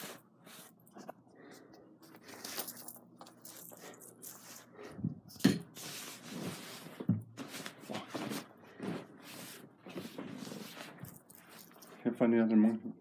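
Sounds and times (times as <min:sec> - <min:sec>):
rustling and clattering of objects: 0:00.0 - 0:12.9.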